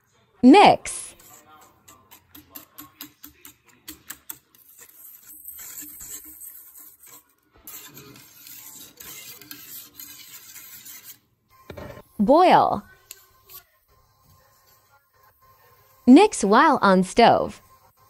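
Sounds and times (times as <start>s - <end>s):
whisk scraping pan: 0.9s - 15.1s.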